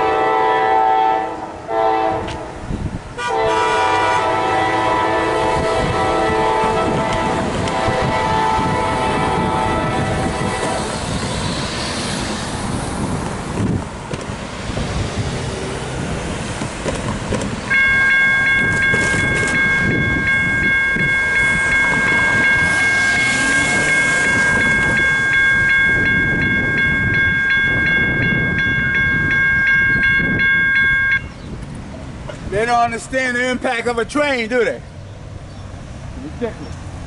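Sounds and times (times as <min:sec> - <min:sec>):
road traffic passing: 0:00.0 - 0:37.0
railroad crossing bell ringing: 0:17.7 - 0:31.4.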